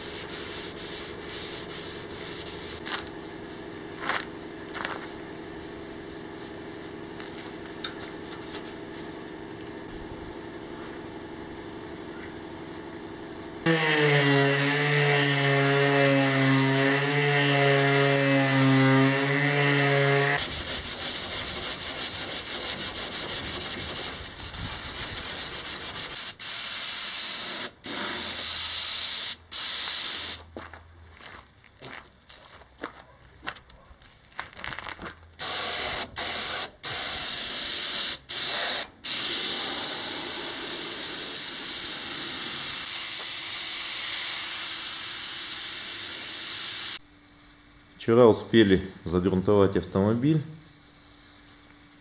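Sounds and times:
pneumatic spray gun hissing: 0:00.0 - 0:09.2, 0:19.1 - 0:30.5, 0:35.4 - 0:47.0
orbital sander whining: 0:13.6 - 0:26.1.

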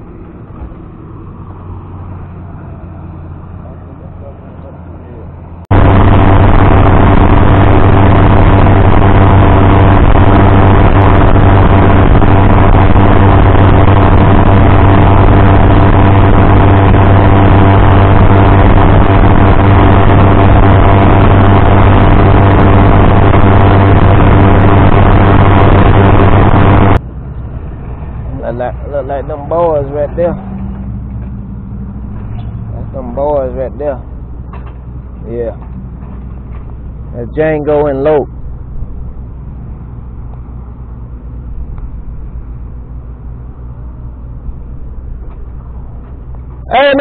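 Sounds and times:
outboard motor running: 0:05.7 - 0:27.0.

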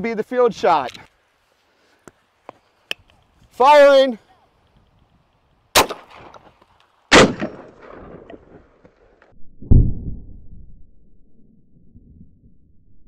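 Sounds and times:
shotgun shots with echo: 0:05.8 - 0:06.4, 0:07.1 - 0:08.3
deep low boom: 0:09.4 - 0:13.0.

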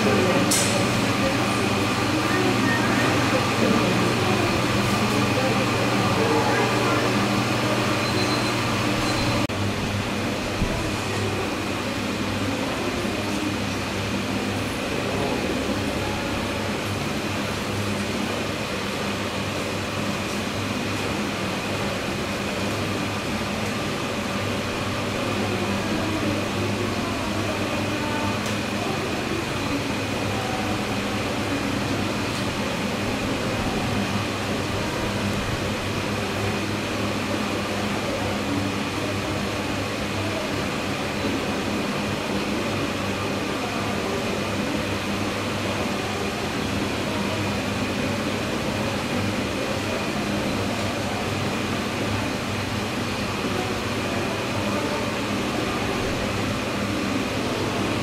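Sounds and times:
ventilation machinery hum: 0:00.0 - 0:58.0
faint high whine: 0:01.1 - 0:09.6.

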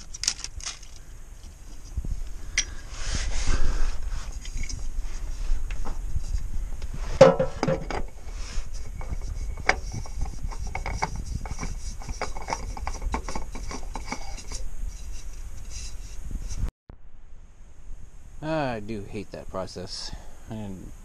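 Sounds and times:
hand scraping metal parts: 0:00.0 - 0:03.4, 0:07.0 - 0:16.6
pitched scrape: 0:08.2 - 0:16.7.

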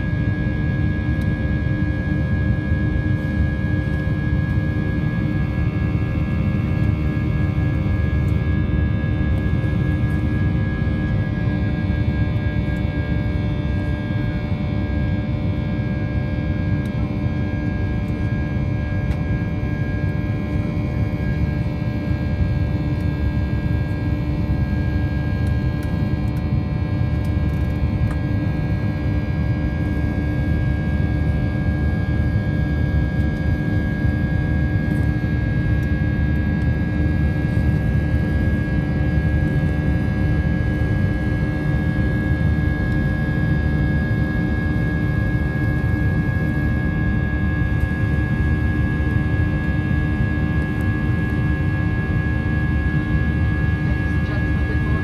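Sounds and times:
jet engines and airflow rush: 0:00.0 - 0:55.0
steady hum: 0:00.0 - 0:55.0.

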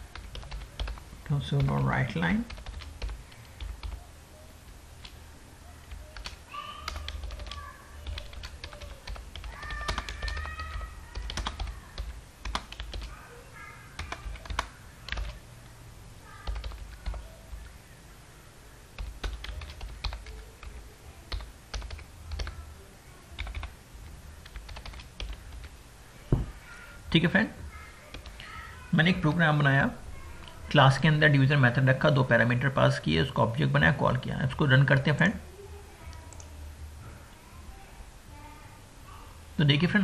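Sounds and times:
keyboard typing clicks: 0:02.5 - 0:04.0, 0:05.9 - 0:13.1, 0:14.0 - 0:15.4, 0:16.4 - 0:17.2, 0:21.3 - 0:22.5, 0:24.4 - 0:25.7.

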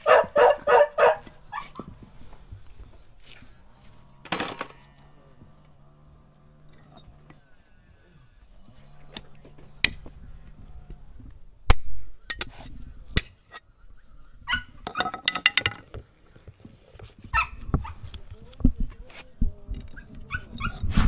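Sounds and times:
dog whimpering: 0:00.4 - 0:04.2, 0:08.4 - 0:09.4, 0:16.5 - 0:21.0.

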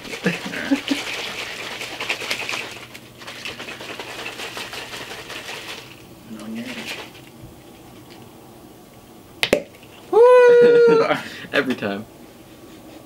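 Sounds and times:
shaker cups rattling: 0:00.0 - 0:08.3.

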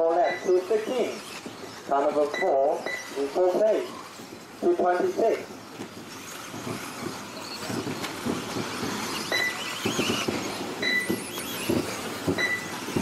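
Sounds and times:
rc car motors whining: 0:00.0 - 0:13.0
thumps: 0:00.0 - 0:13.0.

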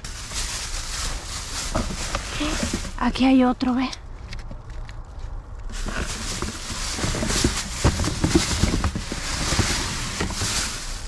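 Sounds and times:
bag rustling: 0:00.0 - 0:03.4, 0:05.6 - 0:11.0.

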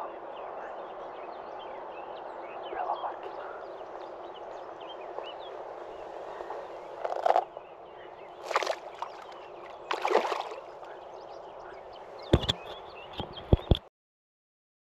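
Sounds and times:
water splashing and sloshing: 0:04.0 - 0:07.6, 0:08.3 - 0:11.2
sharp knocks: 0:12.3 - 0:13.8.

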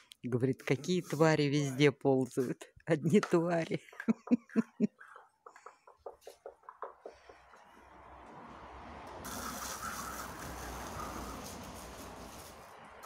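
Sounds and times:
water spraying from a hose: 0:08.8 - 0:13.0.

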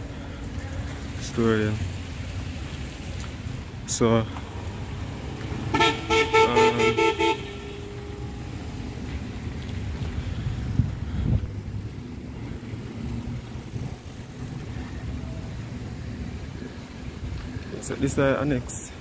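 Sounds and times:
low rumble of vehicles: 0:00.0 - 0:19.0
car horn toots: 0:05.7 - 0:08.0.

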